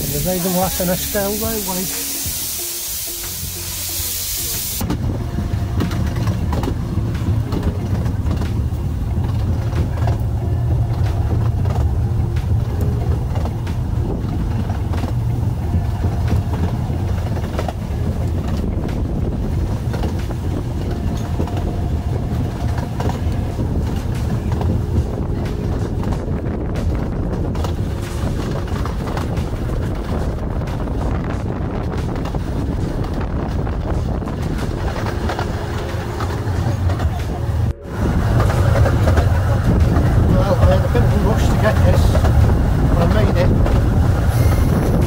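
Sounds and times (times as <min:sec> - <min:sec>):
steam hissing from locomotive: 0:00.0 - 0:04.9, 0:44.3 - 0:45.0
train carriage rumbling on rails: 0:00.0 - 0:45.0
track clicks and clatter: 0:04.8 - 0:45.0.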